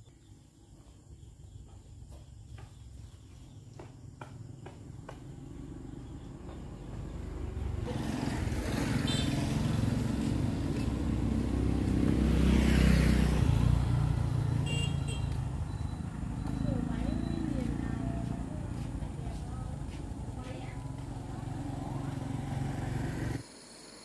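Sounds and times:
motor vehicle passing: 2.1s - 23.4s
light footsteps: 9.7s - 12.3s, 15.1s - 22.3s.

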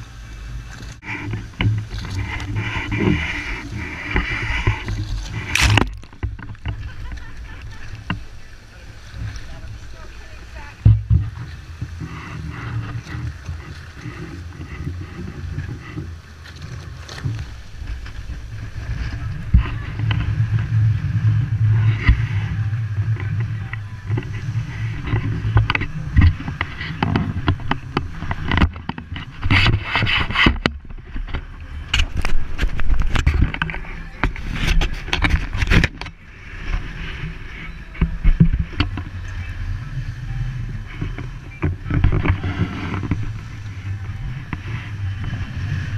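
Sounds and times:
water rushing along hull: 0.0s - 45.9s
wind rumbling on microphone: 0.0s - 45.9s.

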